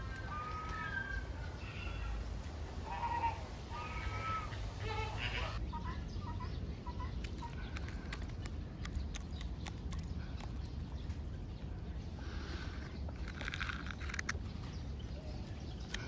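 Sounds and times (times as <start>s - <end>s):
birds calling: 0.0s - 16.0s
sharp clicks: 7.2s - 11.2s.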